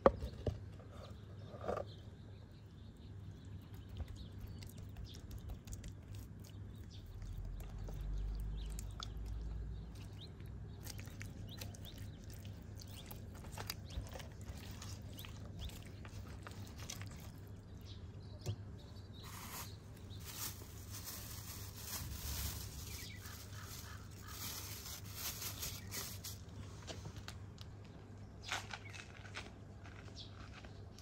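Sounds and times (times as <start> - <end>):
wet squelching of hands on fish: 10.0 - 17.7.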